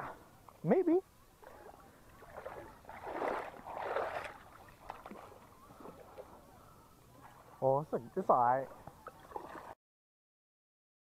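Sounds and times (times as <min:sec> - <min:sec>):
water splashing: 0:01.4 - 0:09.8.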